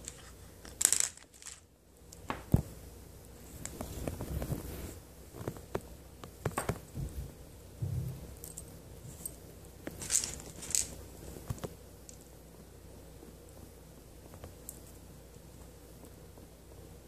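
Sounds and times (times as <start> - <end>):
beads clicking together: 0.0 - 1.7
soft rubbing: 3.3 - 5.8.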